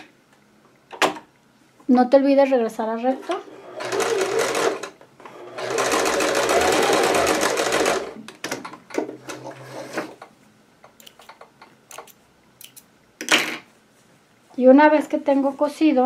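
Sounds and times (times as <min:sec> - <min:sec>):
sewing machine stitching: 0:03.2 - 0:08.2.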